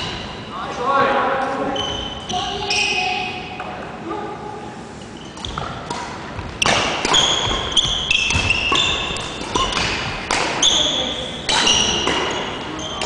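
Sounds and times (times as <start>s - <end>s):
sneakers squeaking on wooden floor: 1.6s - 3.2s, 5.1s - 13.0s
rackets hitting shuttlecock: 5.3s - 13.0s.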